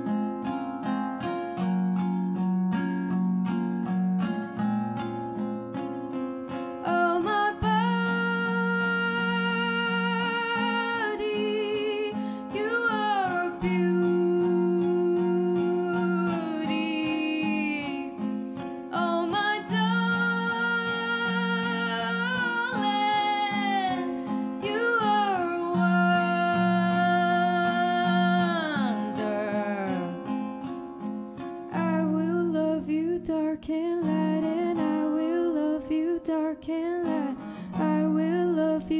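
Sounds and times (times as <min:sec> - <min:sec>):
strummed classical guitar: 0:00.0 - 0:38.9
woman singing: 0:06.5 - 0:30.8, 0:31.7 - 0:38.9.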